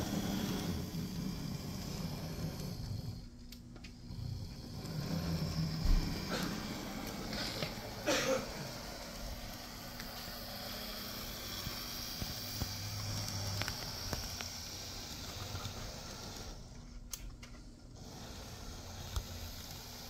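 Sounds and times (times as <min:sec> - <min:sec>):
wheels clicking on rails: 0:00.0 - 0:17.3, 0:17.9 - 0:20.0
faint motor whir: 0:00.0 - 0:20.0.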